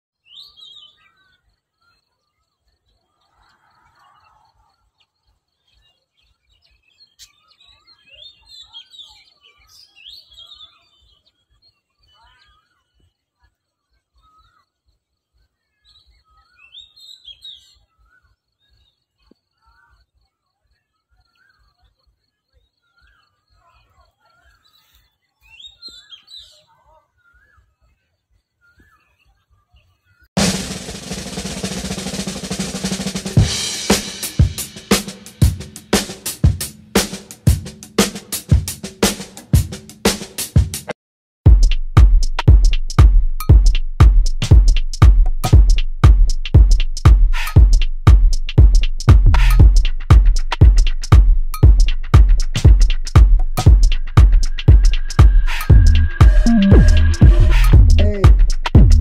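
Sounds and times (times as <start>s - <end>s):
small birds chirping: 0.2s - 13.2s, 13.8s - 30.3s.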